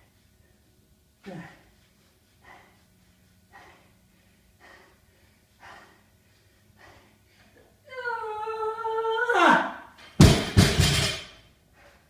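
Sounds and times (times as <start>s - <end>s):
person breathing hard: 0.0s - 7.8s, 11.5s - 12.0s
high vocal effort cry: 7.9s - 10.0s.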